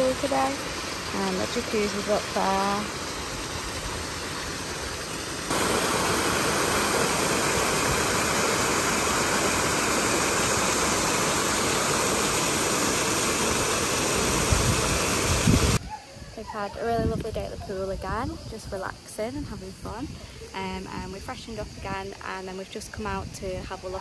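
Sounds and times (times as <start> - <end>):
water pouring and splashing: 0.0 - 15.8.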